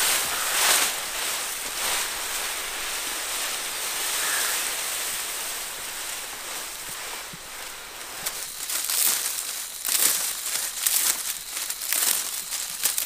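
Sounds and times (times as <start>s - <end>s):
dry palm fronds rustling: 0.0s - 13.0s.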